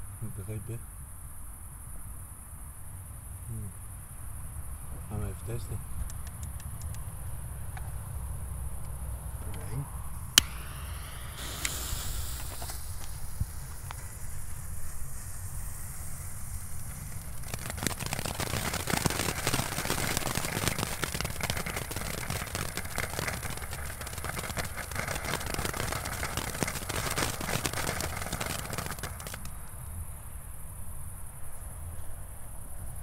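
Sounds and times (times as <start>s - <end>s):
firework crackling and popping: 10.1s - 29.8s.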